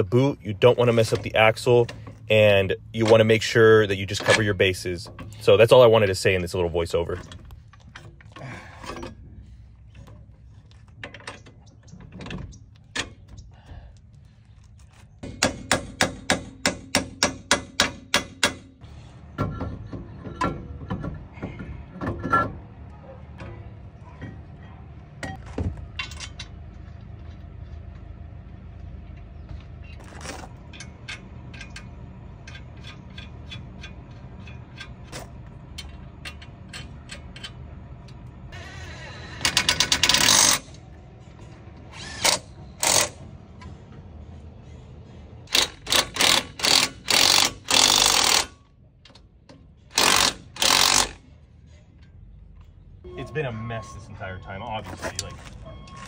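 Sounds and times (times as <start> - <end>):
hand tools clanking on metal: 0.7 - 5.9, 23.4 - 26.6, 30.0 - 38.2
loud ratchet-like clicks: 39.4 - 40.8, 42.0 - 43.2, 45.5 - 48.6, 49.9 - 51.2.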